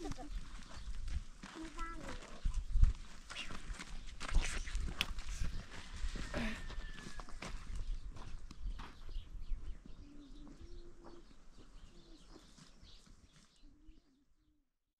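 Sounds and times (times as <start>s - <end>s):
small birds chirping: 0.0s - 6.0s, 6.7s - 14.5s
dove cooing: 9.9s - 12.4s, 13.6s - 14.4s.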